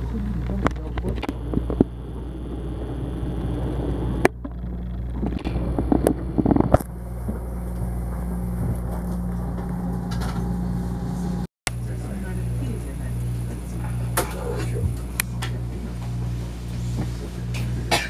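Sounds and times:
railcar drive hum: 0.0 - 4.2, 5.7 - 18.0
knocks and crackles: 0.1 - 2.5, 4.1 - 11.1.

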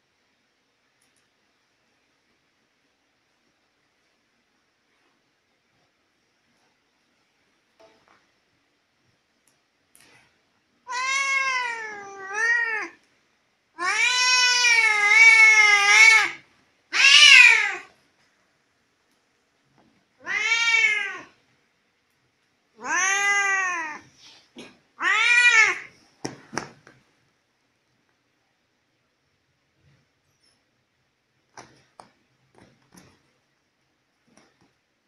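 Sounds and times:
cat meowing: 10.8 - 13.0, 13.8 - 17.9, 20.2 - 21.4, 22.8 - 24.1, 25.0 - 25.9.

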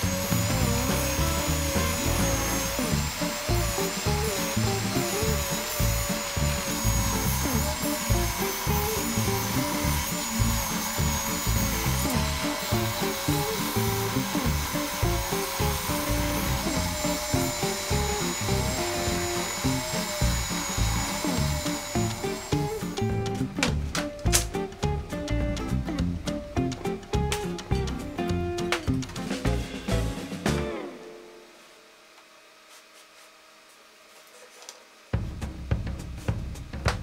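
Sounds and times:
belt sander sanding wood: 0.0 - 29.7
music with steady beat: 20.6 - 30.9, 35.2 - 37.0.

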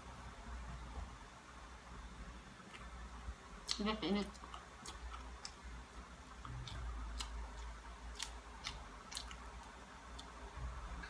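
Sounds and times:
chewing: 3.6 - 10.4.

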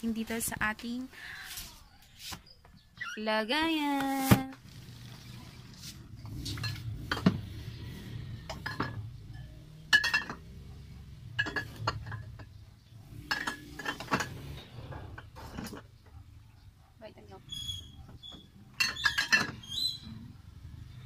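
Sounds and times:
glass bottles clinking: 6.4 - 7.6, 8.4 - 16.0, 17.8 - 19.9.

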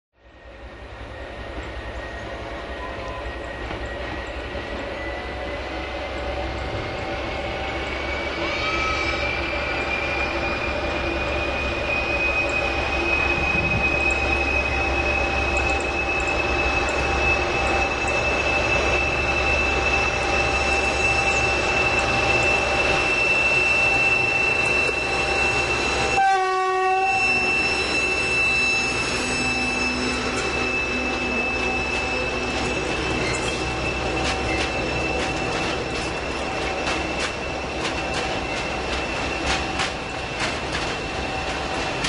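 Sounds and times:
diesel locomotive engine whine: 0.1 - 42.0
locomotive horn blast: 26.0 - 32.5
wagons rolling on rails: 29.5 - 42.0.

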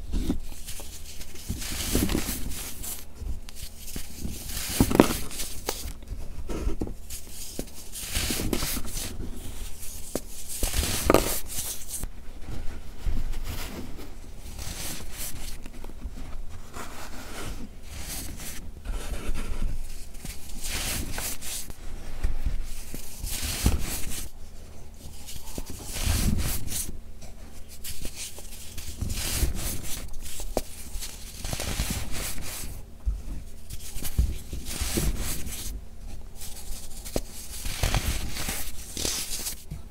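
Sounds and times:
hands crunching baking soda: 0.5 - 5.9, 7.1 - 12.0, 20.2 - 21.7, 22.8 - 24.3, 25.2 - 26.9, 27.7 - 32.8, 33.8 - 35.6, 36.4 - 39.6.

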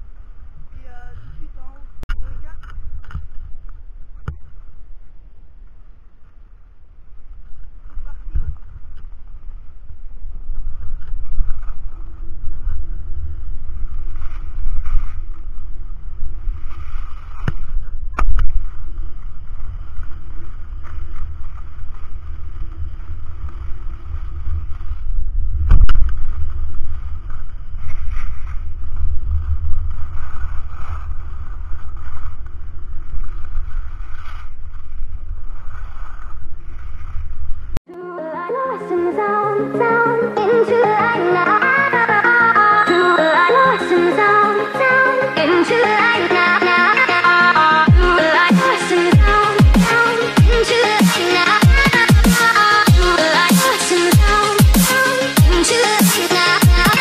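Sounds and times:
skis scraping over snow: 18.6 - 37.8.

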